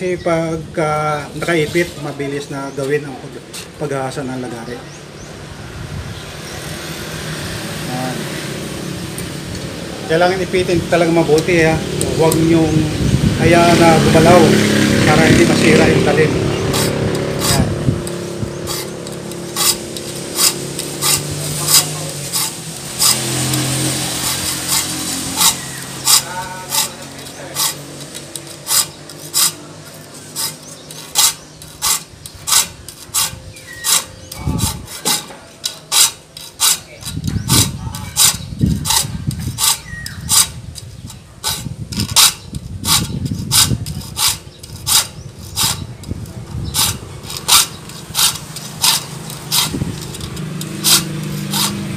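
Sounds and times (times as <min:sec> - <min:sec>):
hand file rasping on saw teeth: 0:13.4 - 0:51.9.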